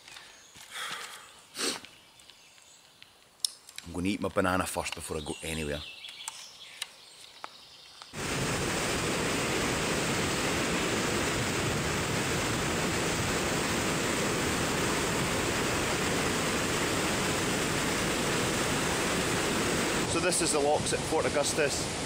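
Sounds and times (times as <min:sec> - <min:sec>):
water rushing over lock gates: 0:08.2 - 0:22.0.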